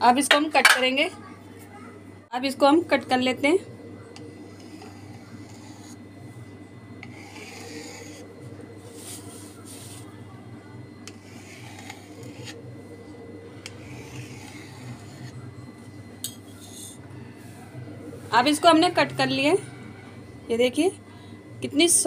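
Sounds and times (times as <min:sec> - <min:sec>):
low steady hum: 0:00.0 - 0:22.0
knife scraping along plate: 0:04.4 - 0:06.0, 0:07.0 - 0:08.3, 0:11.1 - 0:12.6, 0:13.6 - 0:15.5, 0:16.3 - 0:17.0.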